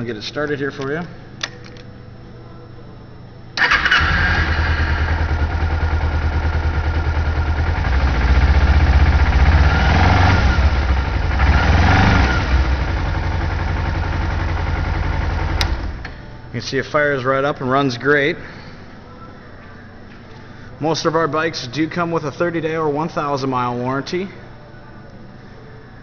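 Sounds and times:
motorcycle engine starting and running: 3.6 - 16.2.

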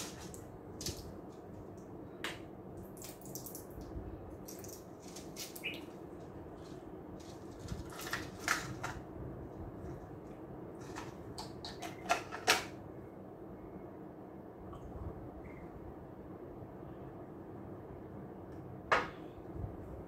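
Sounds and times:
low room hum: 0.0 - 20.0
packaging crinkling: 6.5 - 8.9.

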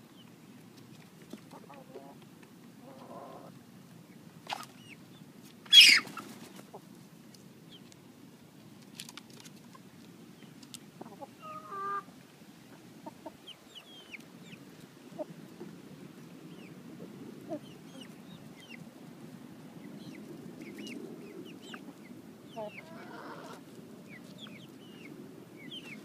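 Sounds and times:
hens clucking: 1.3 - 3.6, 5.7 - 7.0, 10.7 - 16.8, 17.4 - 18.9, 20.0 - 26.0
hen squawking: 5.7 - 6.2.

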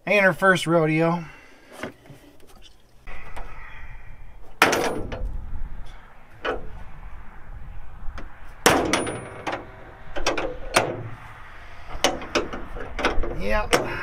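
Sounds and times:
metal clanging with ring: 8.8 - 9.7.

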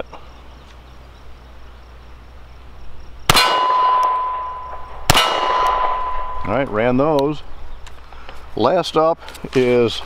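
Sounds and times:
pistol shot: 3.3 - 6.5
steady ringing tone: 3.3 - 7.0.

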